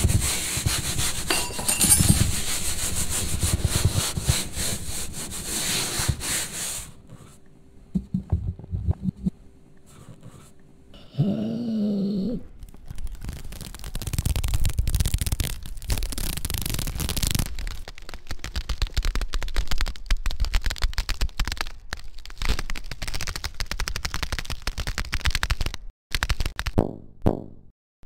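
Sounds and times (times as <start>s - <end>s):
dense crackling and popping: 12.6s - 26.8s.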